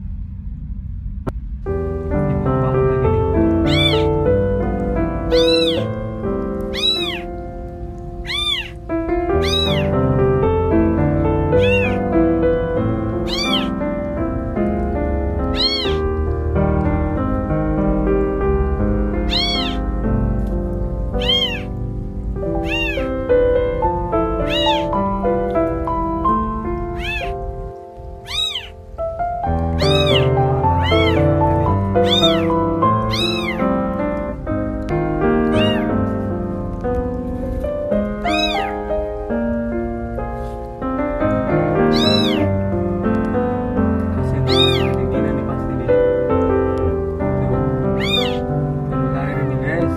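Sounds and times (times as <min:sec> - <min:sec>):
instrumental music: 0:01.3 - 0:49.9
kittens meowing: 0:03.5 - 0:04.3, 0:05.3 - 0:06.0, 0:06.6 - 0:07.4, 0:08.2 - 0:10.0, 0:11.5 - 0:12.1, 0:13.2 - 0:13.8, 0:15.5 - 0:16.1, 0:19.2 - 0:19.9, 0:21.1 - 0:21.8, 0:22.5 - 0:23.3, 0:24.3 - 0:25.0, 0:26.8 - 0:27.5, 0:28.2 - 0:29.0, 0:29.6 - 0:33.7, 0:35.4 - 0:36.0, 0:38.1 - 0:38.9, 0:41.7 - 0:42.6, 0:44.4 - 0:45.2, 0:47.9 - 0:48.5.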